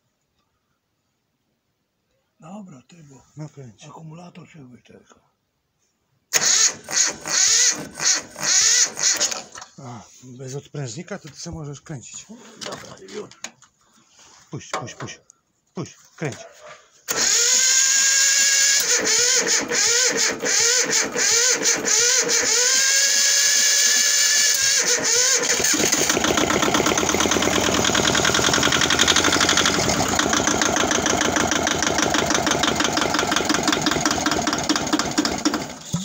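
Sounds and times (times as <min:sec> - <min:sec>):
electric starter cranking: 0:06.3 - 0:09.7, 0:17.1 - 0:36.0
diesel engine running: 0:25.4 - 0:36.0.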